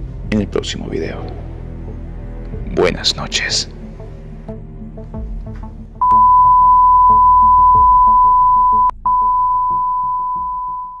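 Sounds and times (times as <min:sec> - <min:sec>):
test-pattern tone beep: 0:06.0 - 0:11.0.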